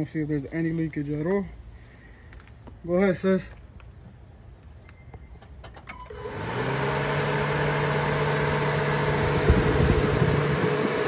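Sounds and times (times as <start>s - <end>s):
car engine starting and idling: 5.6s - 11.0s.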